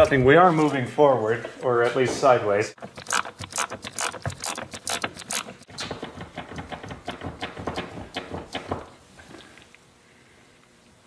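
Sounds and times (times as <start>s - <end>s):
ratchet wrench clicking: 2.9s - 5.6s.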